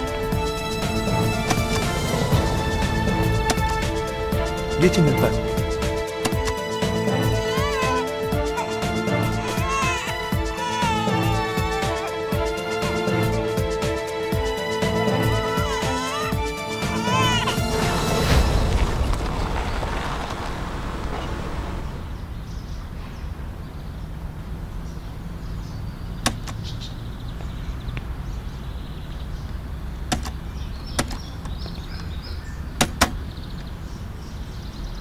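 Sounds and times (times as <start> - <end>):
car engine running: 16.4 - 31.8
car doors clicking: 26.1 - 26.7, 30.0 - 31.7, 32.8 - 33.3.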